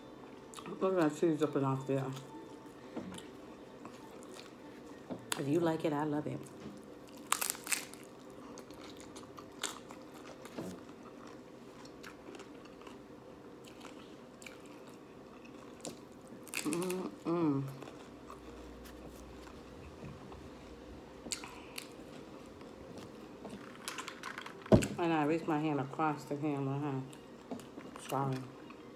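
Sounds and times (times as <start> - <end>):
taco shell crunching: 7.0 - 17.2
person humming: 16.7 - 17.8.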